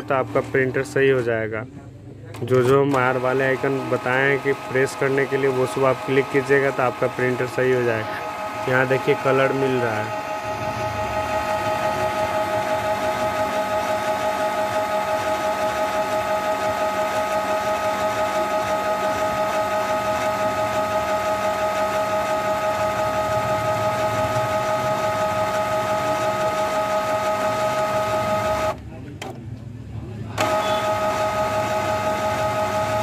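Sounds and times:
printer pump whining: 0.0s - 1.5s, 2.3s - 28.8s, 30.3s - 33.0s.

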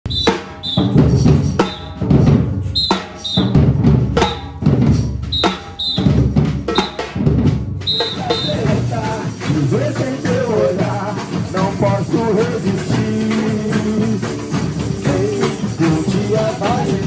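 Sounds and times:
drums beating a rhythm: 0.0s - 17.0s
whistle blasts: 0.1s - 2.1s, 2.7s - 4.6s, 5.3s - 7.1s, 7.8s - 9.0s.

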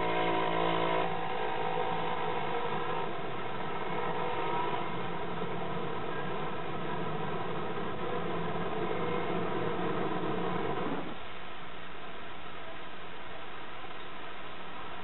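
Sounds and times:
vehicle engine running: 0.0s - 11.2s.

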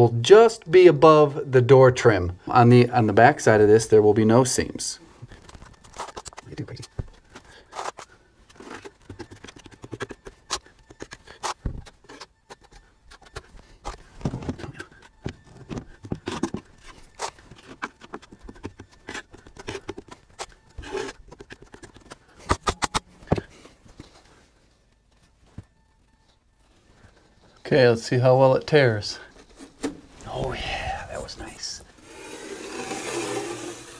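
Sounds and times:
drywall knife scraping: 32.0s - 33.9s.

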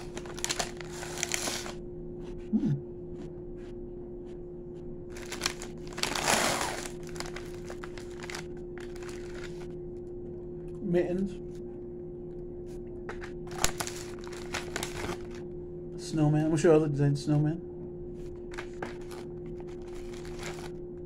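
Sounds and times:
steady hum: 0.0s - 21.0s
person humming: 2.5s - 2.9s.

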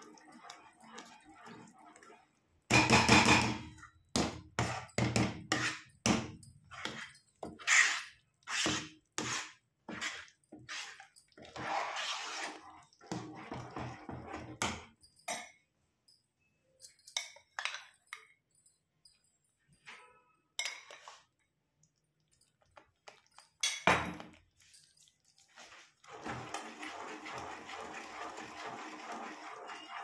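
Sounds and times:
metal spoon scraping steel pot: 0.0s - 3.6s, 4.6s - 6.0s, 6.6s - 14.7s, 26.1s - 30.0s.

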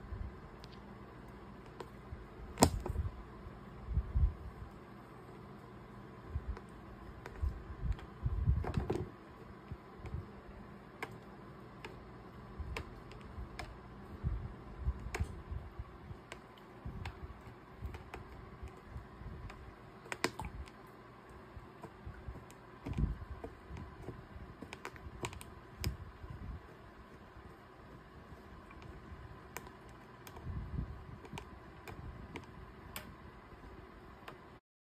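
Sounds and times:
light clicks and taps: 21.8s - 26.0s.

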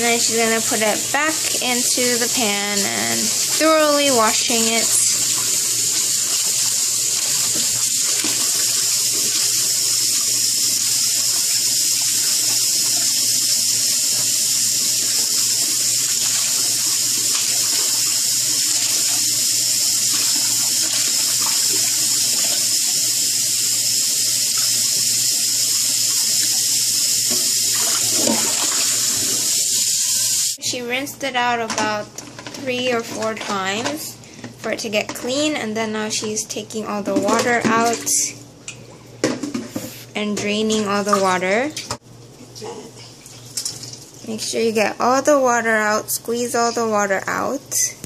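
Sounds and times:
tap water running into pan: 0.0s - 30.6s, 43.2s - 44.2s.

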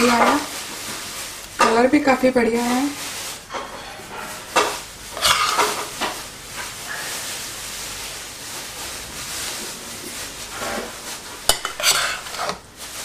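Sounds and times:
soft rustling hiss: 0.0s - 13.0s
spoon scraping metal pot: 3.9s - 5.9s, 11.5s - 12.6s.

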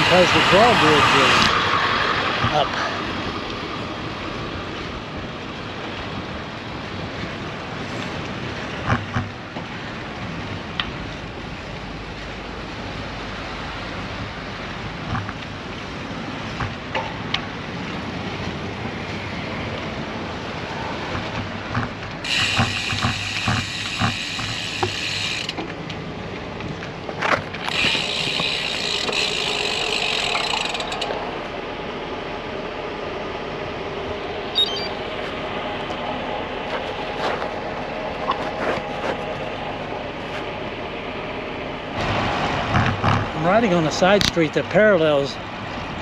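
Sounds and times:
wind and road noise: 0.0s - 46.0s
bicycle freehub ratchet buzzing: 22.2s - 25.6s, 27.6s - 31.2s.

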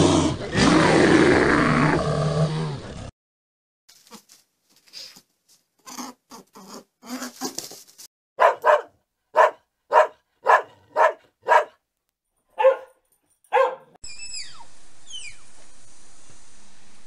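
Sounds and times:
soft scuffling noises: 7.3s - 8.1s
dog barking: 8.4s - 11.8s, 12.5s - 14.0s.

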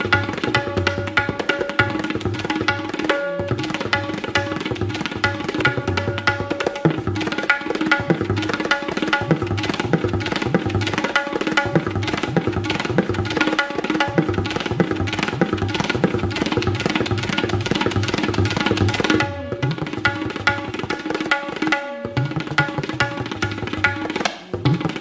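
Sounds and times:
sitar plucking: 0.0s - 25.0s
tabla rhythm: 0.0s - 25.0s.

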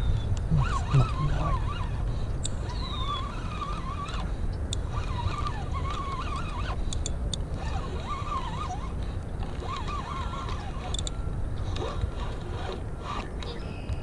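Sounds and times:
fishing reel gears whining: 0.1s - 13.9s.

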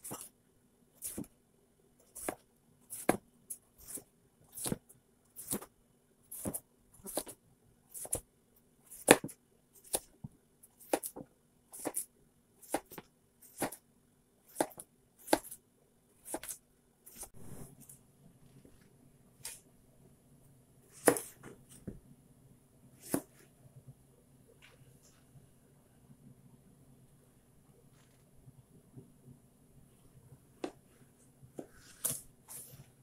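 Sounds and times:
knife slicing on cutting board: 20.9s - 21.5s, 23.0s - 23.4s.

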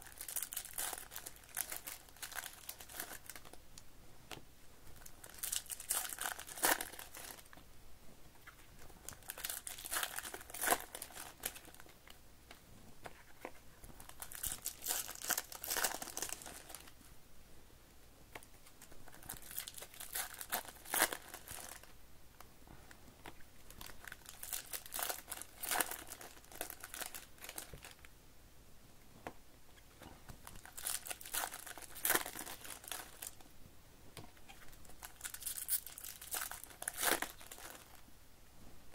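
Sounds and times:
foil wrappers crinkling and tearing: 0.0s - 3.6s, 5.0s - 7.5s, 9.1s - 11.9s, 14.0s - 17.0s, 19.1s - 21.9s, 23.7s - 28.1s, 30.4s - 33.4s, 34.6s - 38.0s.

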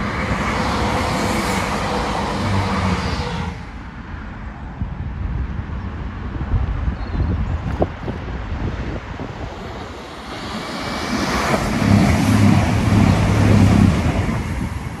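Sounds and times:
train rushing past: 0.0s - 4.0s, 8.3s - 15.0s
diesel engines humming: 9.6s - 15.0s.

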